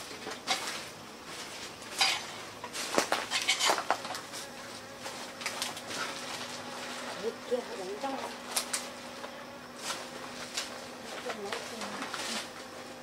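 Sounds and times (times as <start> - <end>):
insects humming: 0.0 - 13.0.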